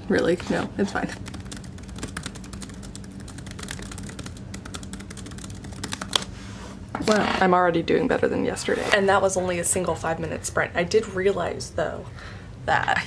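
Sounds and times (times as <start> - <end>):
laptop keyboard typing: 1.2 - 6.2.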